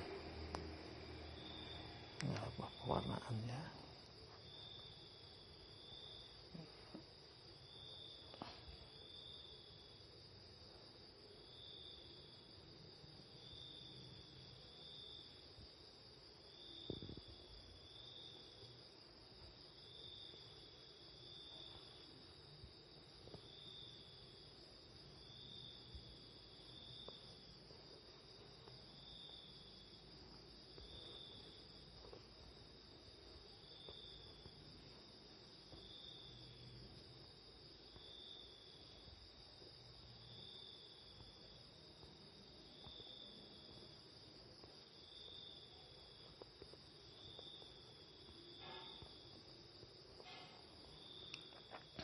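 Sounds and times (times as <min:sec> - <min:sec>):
low room hum: 0:00.0 - 0:52.0
short insect chirp: 0:00.0 - 0:52.0
insect trilling: 0:01.2 - 0:04.0.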